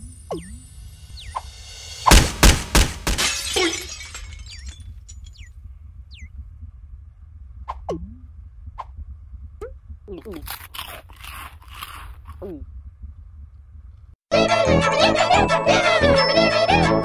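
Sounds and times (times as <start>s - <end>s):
falling chirps: 0.0s - 2.1s, 3.6s - 6.4s
low hum: 0.0s - 14.2s
cartoon crashes: 0.3s - 5.5s
shattering smash: 2.0s - 5.5s.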